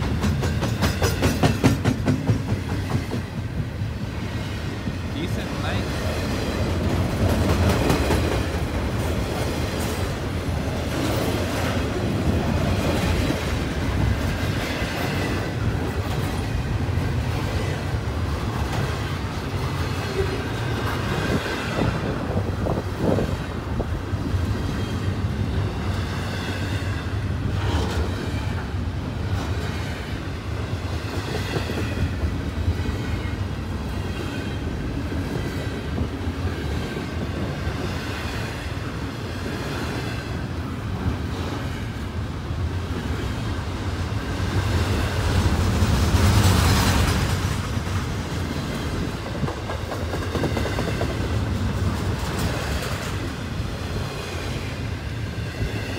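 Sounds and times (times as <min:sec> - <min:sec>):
train wheel knocks: 0:00.0 - 0:03.6
freight train rumbling past: 0:00.0 - 0:55.9.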